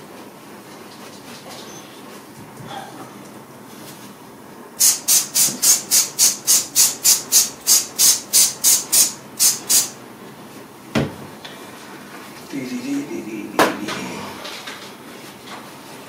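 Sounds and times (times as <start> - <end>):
spray bottle spraying: 4.8 - 10.0.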